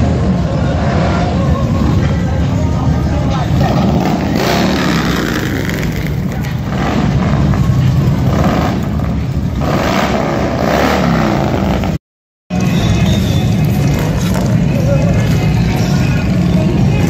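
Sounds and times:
motorcycles rumbling past: 3.3 - 12.0.

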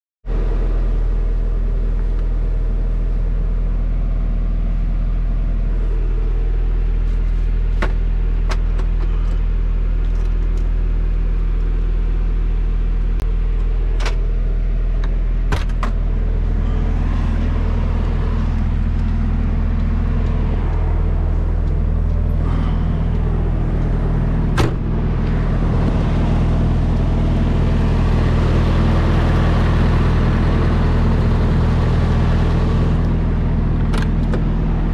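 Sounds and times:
diesel engine idling: 0.3 - 34.9
thump: 24.6 - 24.9.

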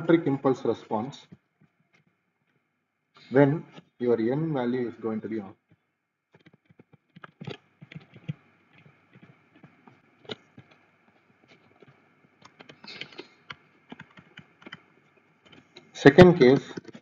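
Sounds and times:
stylus tapping on a tablet: 6.4 - 10.8, 11.4 - 14.9.

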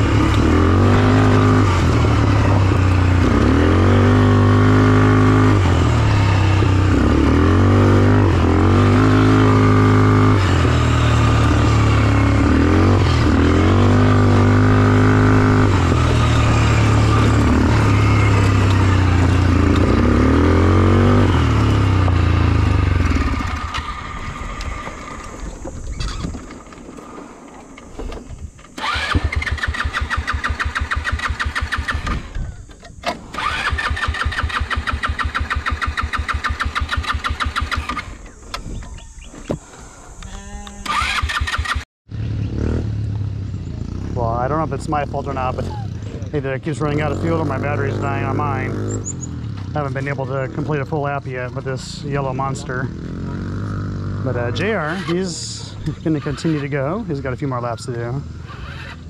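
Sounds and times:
atv engine revving: 0.0 - 59.0
starter cranking: 23.1 - 39.1.

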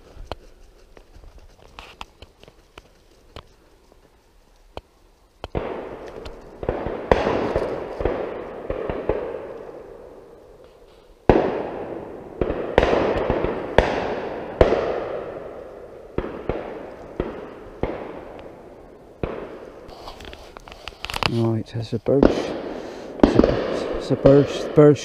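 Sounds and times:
shotgun shots echoing: 5.5 - 10.6, 11.2 - 19.9, 21.7 - 25.0.

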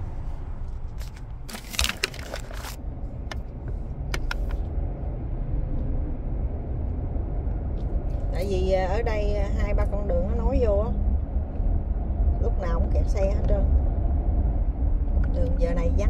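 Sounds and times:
low rumble inside car: 0.0 - 16.0
phone rustling and scraping: 0.1 - 4.7
sharp handling clicks: 4.1 - 4.6.

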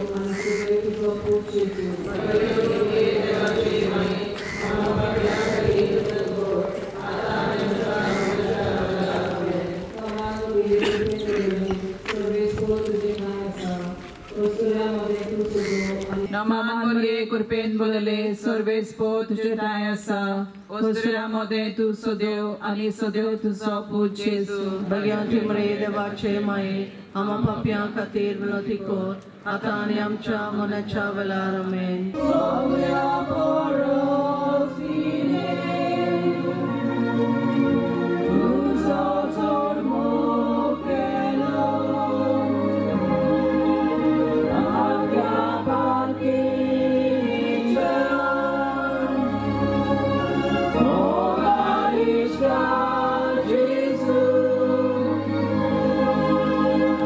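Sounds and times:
choir singing a hymn: 0.0 - 16.4, 24.6 - 31.5, 32.1 - 57.0
organ chords: 32.2 - 57.0.

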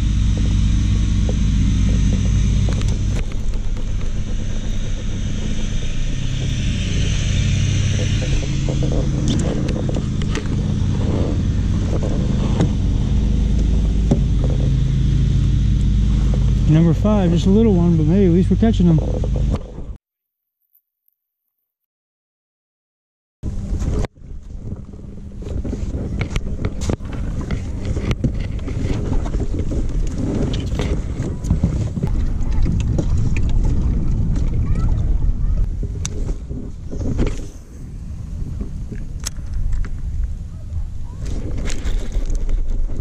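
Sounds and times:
motor engine running: 0.0 - 20.0, 23.4 - 43.0
wind buffeting microphone: 0.0 - 20.0, 23.4 - 43.0
clicks and bumps in kayak: 25.5 - 35.1, 41.2 - 43.0.

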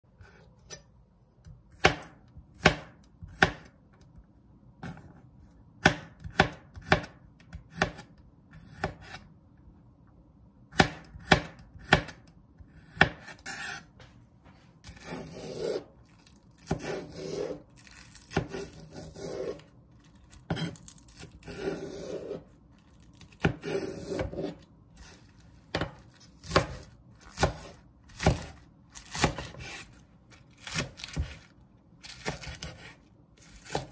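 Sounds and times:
knife chopping on cutting board: 1.7 - 3.7, 5.8 - 9.2, 10.7 - 13.8, 14.8 - 15.9, 16.6 - 17.6, 18.2 - 19.6, 20.5 - 22.4, 23.3 - 29.9, 30.6 - 31.5, 32.1 - 33.9
knife scraping cutting board: 12.8 - 14.0, 14.8 - 30.0, 32.1 - 33.9.

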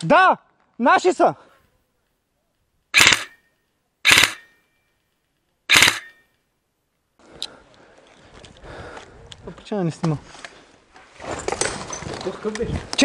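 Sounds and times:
airsoft rifle shots: 3.0 - 3.4, 4.0 - 4.5, 5.7 - 6.2
faint rustle: 7.2 - 13.0.

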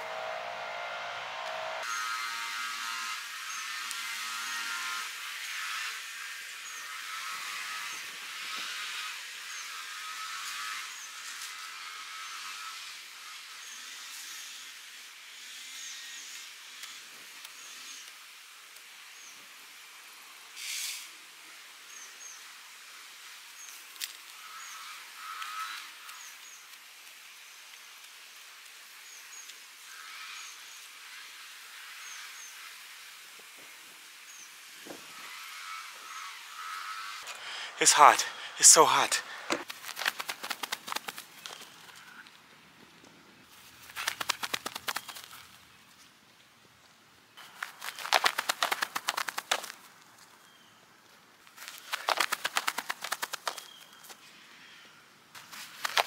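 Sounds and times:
insect drone: 47.4 - 49.8, 51.6 - 54.8.

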